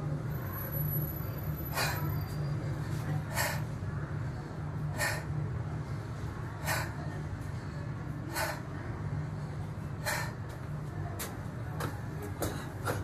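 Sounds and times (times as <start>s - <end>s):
steady low hum: 0.0s - 13.0s
man breathing hard: 1.6s - 10.6s.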